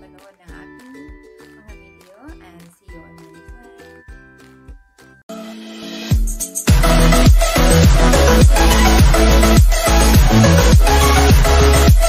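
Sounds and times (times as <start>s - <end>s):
electronic dance music: 5.3s - 12.0s.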